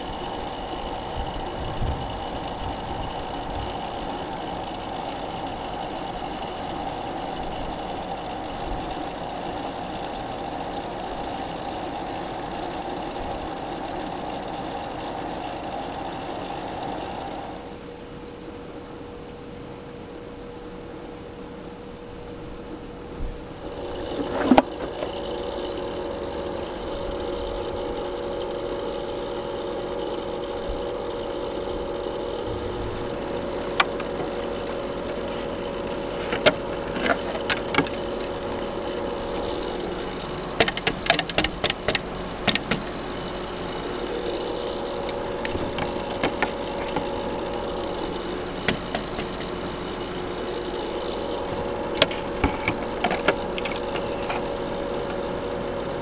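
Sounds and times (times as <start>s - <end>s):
pool pump motor humming: 0.0s - 56.0s
sharp clicks and taps: 33.7s - 34.8s, 40.6s - 42.9s, 48.6s - 49.6s.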